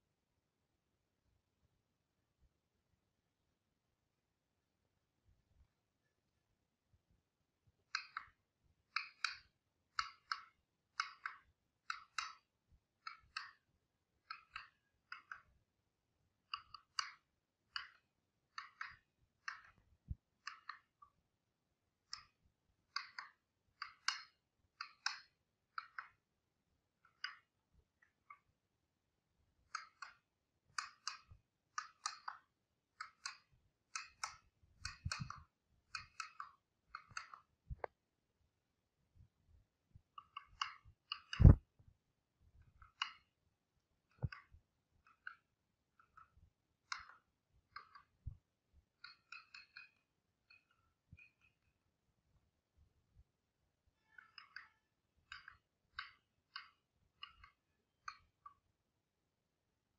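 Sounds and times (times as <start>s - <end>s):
mallet tapping chisel: 7.9s - 15.6s, 16.5s - 21.2s, 22.1s - 26.2s, 29.7s - 37.9s, 40.2s - 41.7s, 44.0s - 51.7s, 54.0s - 58.6s.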